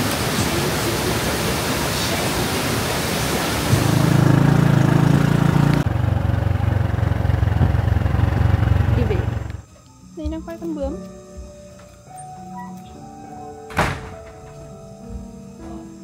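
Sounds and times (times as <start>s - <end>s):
waterfall rushing: 0.0s - 5.8s
loud low drone: 3.7s - 9.6s.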